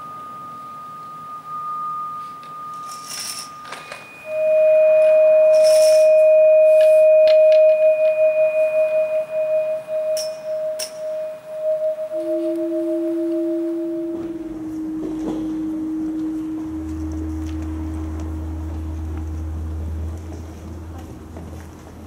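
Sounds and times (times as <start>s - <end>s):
thin high ringing tone: 0.0s - 20.0s
low ringing tone pulsing: 0.0s - 20.9s.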